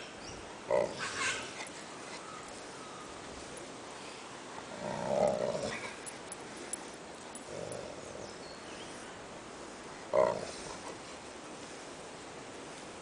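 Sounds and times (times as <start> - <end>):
dog growling: 4.7 - 6.1, 7.4 - 8.3.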